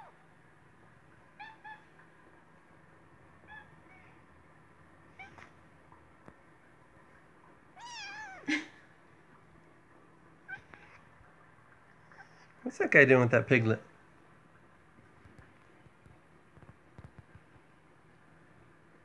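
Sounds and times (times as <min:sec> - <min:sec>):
kitten mewing: 0:07.8 - 0:08.8.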